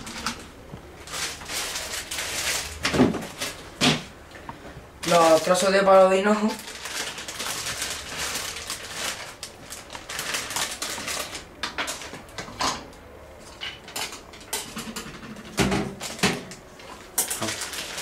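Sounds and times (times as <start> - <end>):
plastic bag crinkling: 0.0 - 3.8, 5.0 - 12.4, 17.0 - 18.0.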